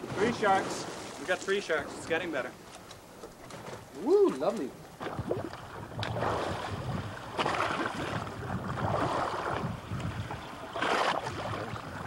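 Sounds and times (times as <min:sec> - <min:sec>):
water sloshing beside boat: 0:00.0 - 0:12.0
wind on microphone: 0:03.9 - 0:12.0.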